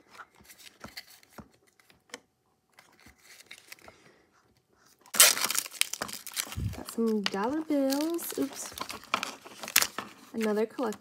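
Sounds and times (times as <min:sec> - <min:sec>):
paper wrappers crinkling: 0:02.7 - 0:04.0, 0:05.0 - 0:11.0.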